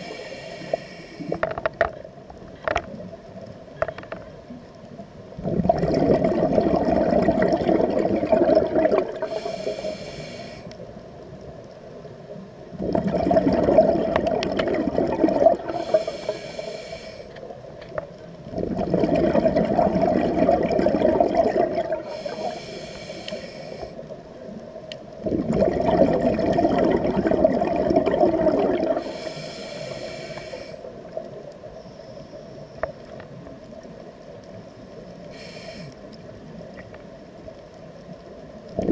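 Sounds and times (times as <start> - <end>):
regulator inhale hiss: 0.0 - 1.4, 9.1 - 10.9, 15.6 - 17.6, 22.0 - 24.2, 28.9 - 32.7, 35.2 - 36.3
exhaled bubbles underwater: 5.3 - 10.0, 12.6 - 16.7, 18.2 - 31.5, 38.4 - 38.9.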